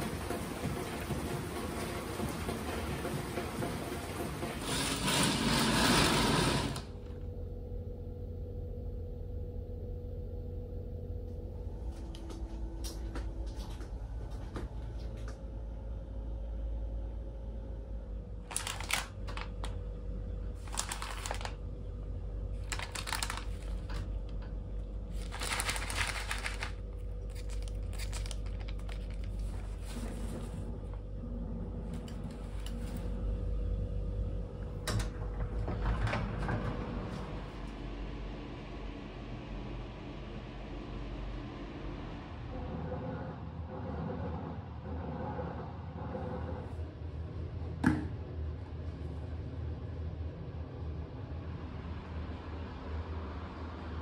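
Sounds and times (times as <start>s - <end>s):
rain falling: 0.0s - 6.2s, 25.2s - 29.5s
room low hum: 0.0s - 54.0s.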